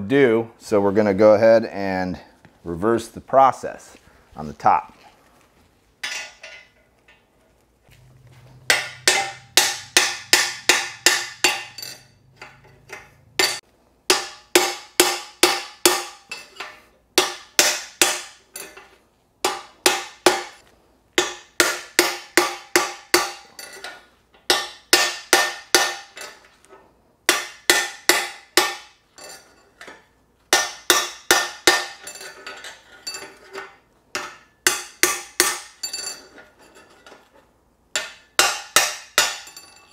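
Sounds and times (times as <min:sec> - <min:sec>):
sledgehammer striking steel drift: 0:08.6 - 0:12.6.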